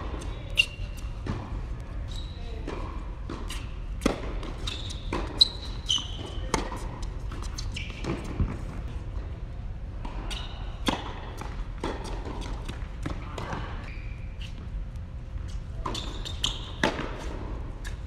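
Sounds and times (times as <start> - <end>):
tennis shoes squeaking: 0.1 - 8.7, 10.0 - 14.8, 15.4 - 18.0
tennis ball struck and bouncing: 2.7 - 5.4, 16.7 - 18.0.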